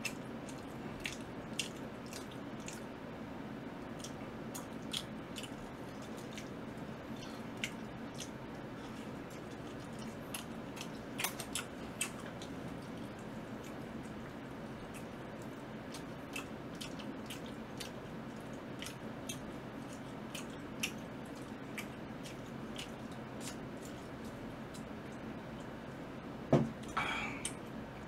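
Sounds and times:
person chewing food: 0.0s - 2.9s, 3.8s - 25.8s
low background hum: 0.0s - 28.0s
can knocking on table: 26.5s - 26.7s.

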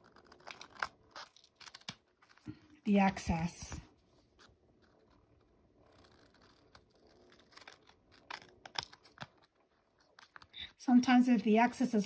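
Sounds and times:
scissors snipping paper: 0.0s - 3.4s, 6.0s - 11.9s.

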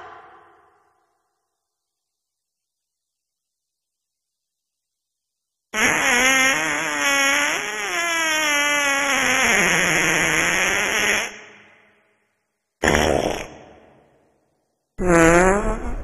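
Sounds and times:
fart: 5.7s - 11.8s, 12.8s - 14.0s, 15.0s - 16.0s.

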